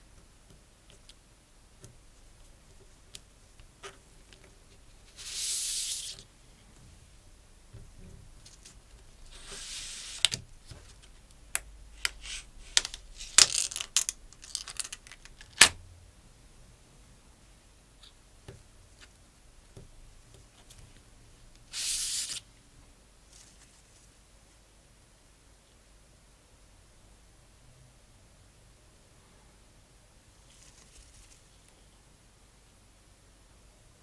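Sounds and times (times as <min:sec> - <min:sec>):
band sliding against card: 0:05.1 - 0:06.2, 0:09.3 - 0:10.4.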